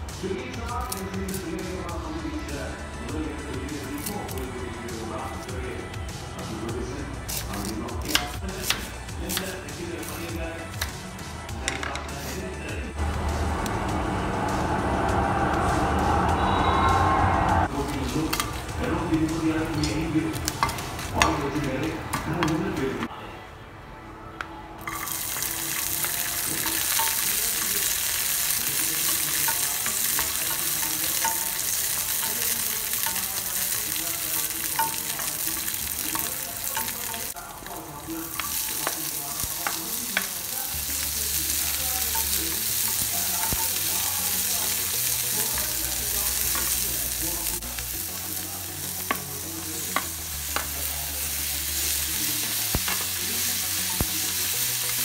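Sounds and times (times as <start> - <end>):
garlic and chillies sizzling in oil: 3.0 - 12.4, 17.6 - 23.1, 24.8 - 55.0
wooden spatula clicking on pan: 29.0 - 40.4.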